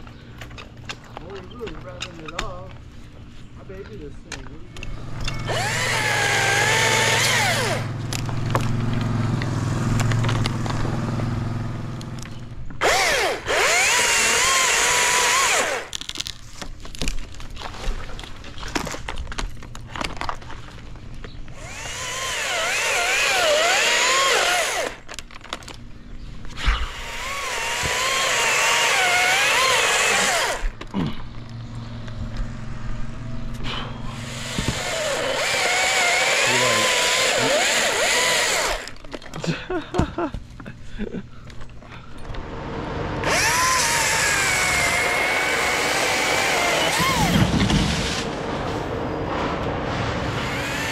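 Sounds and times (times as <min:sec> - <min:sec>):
chainsaw cutting limbs: 0:05.1 - 0:19.2, 0:21.5 - 0:25.7, 0:26.5 - 0:31.5, 0:33.5 - 0:39.4, 0:42.4 - 0:48.5, 0:49.7 - 0:50.9.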